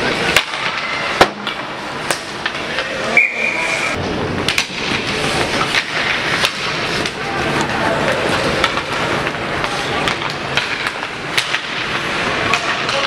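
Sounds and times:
hockey sticks clacking puck: 0.0 - 3.2, 4.4 - 13.0
crowd din: 0.0 - 13.0
referee's whistle: 3.1 - 3.9.

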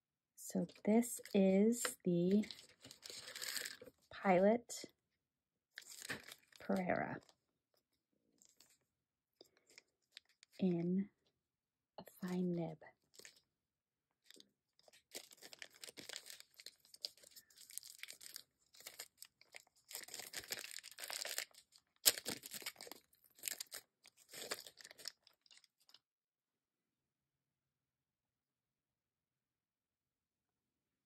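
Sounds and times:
plastic sleeve crinkling and tearing: 2.4 - 3.9, 5.8 - 6.7, 14.3 - 26.0.

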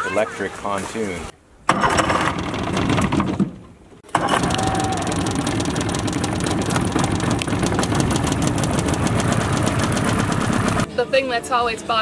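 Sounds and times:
outboard motor idling: 4.0 - 10.9.

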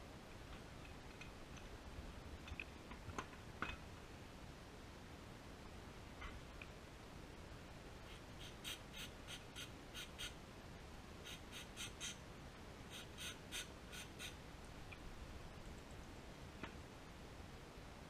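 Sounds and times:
faint high bird calls: 8.1 - 10.4, 11.2 - 12.2, 12.9 - 15.0.

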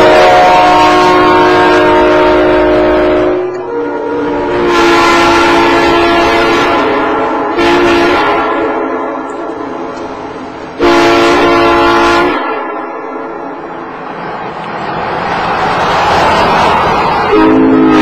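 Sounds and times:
locomotive air horn blasts: 0.0 - 9.4, 10.8 - 12.8, 17.3 - 18.0.

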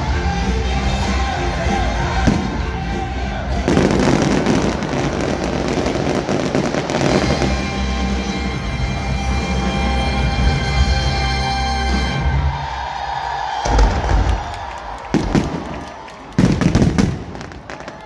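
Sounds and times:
loud music: 0.0 - 12.7
fireworks crackling: 2.2 - 8.5, 13.7 - 18.0.

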